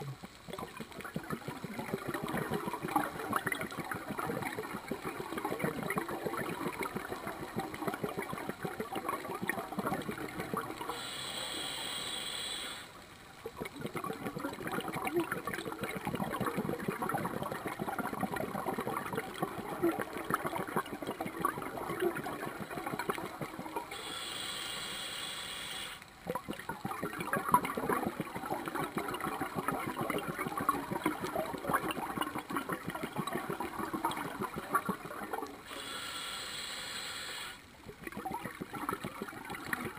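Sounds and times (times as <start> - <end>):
exhaled bubbles crackling: 0.0 - 39.9
regulator inhale hiss: 10.9 - 13.0, 23.9 - 26.0, 35.6 - 37.7.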